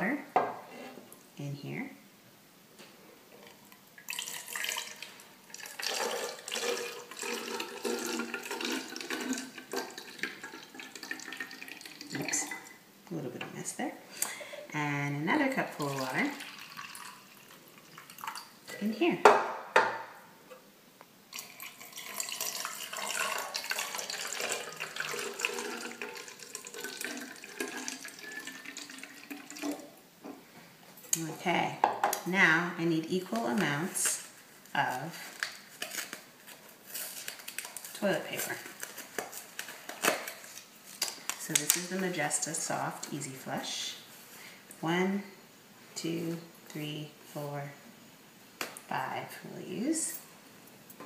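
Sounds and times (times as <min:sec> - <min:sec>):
water pouring into plastic bottle: 0:04.0 - 0:12.6, 0:15.8 - 0:18.5, 0:21.3 - 0:29.9.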